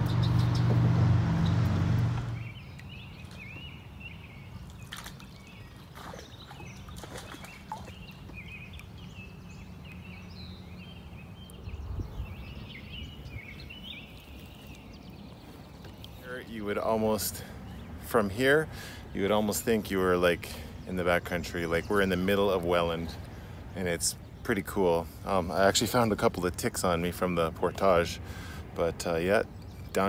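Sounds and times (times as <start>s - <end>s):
small birds chirping: 0.0s - 0.8s, 2.3s - 30.0s
loud low rumble with hum: 0.0s - 2.5s.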